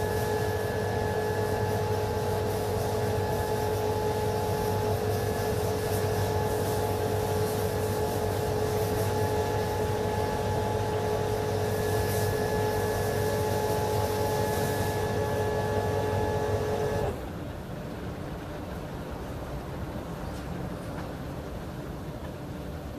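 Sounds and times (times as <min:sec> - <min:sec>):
water spray hiss: 0:00.0 - 0:17.0
pressure washer motor drone: 0:00.0 - 0:17.2.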